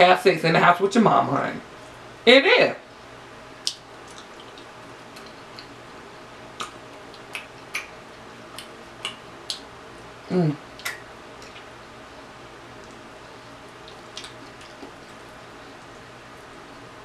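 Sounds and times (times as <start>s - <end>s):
wet chewing clicks and smacks: 3.6s - 5.8s, 6.5s - 10.1s, 10.7s - 12.0s, 12.7s - 15.4s
person humming: 10.3s - 10.6s.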